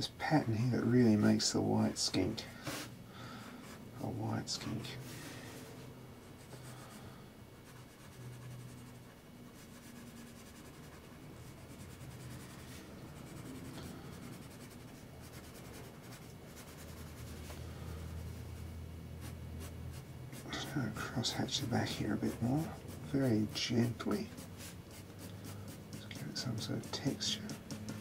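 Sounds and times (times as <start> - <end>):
pencil scratching on paper: 7.6 - 18.6, 19.2 - 28.0.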